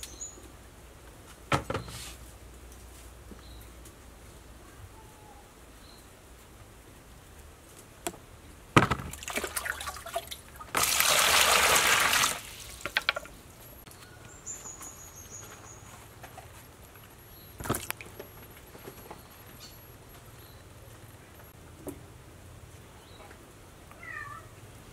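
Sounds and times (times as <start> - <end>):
water splashing in plastic basin: 8.8 - 13.3.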